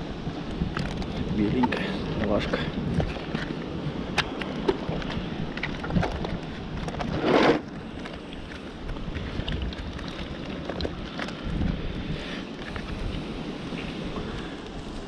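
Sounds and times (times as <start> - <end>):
wind rumbling on microphone: 0.0 - 15.0
wet fish handled in plastic bucket: 4.3 - 11.9.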